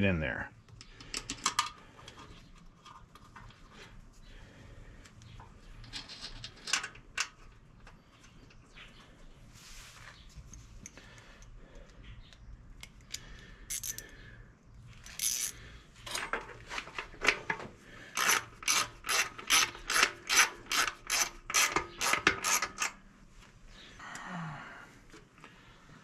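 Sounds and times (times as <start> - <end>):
hand ratchet clicking: 12.8 - 14.1, 15.0 - 16.2, 18.1 - 23.0.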